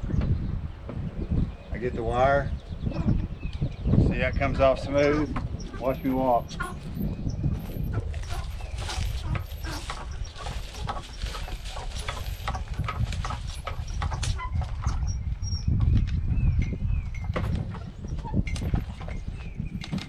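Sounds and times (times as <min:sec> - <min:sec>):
wind buffeting microphone: 0:00.0 - 0:20.0
dry leaves and twigs crackling: 0:07.6 - 0:14.8.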